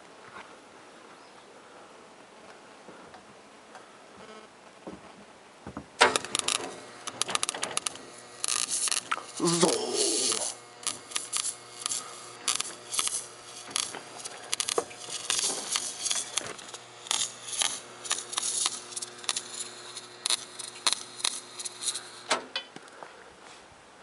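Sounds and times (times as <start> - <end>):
low hum: 6.0 - 22.3
arc welder crackling: 6.0 - 23.0.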